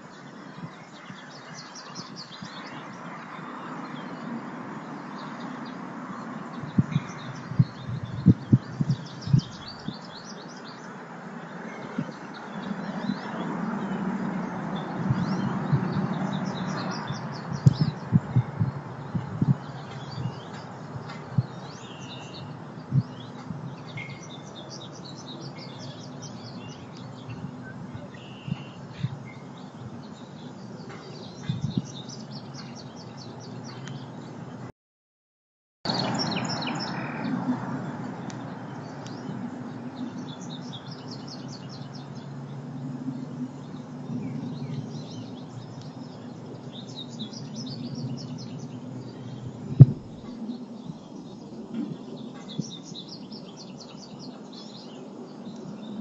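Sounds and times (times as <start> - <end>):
small songbirds chirping: 0.0 - 34.7, 35.9 - 56.0
low thumps: 49.7 - 50.2.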